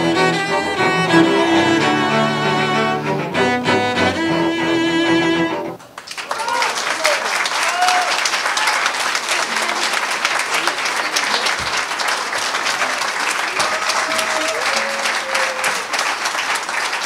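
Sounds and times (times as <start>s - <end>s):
audience applauding: 5.8s - 17.0s.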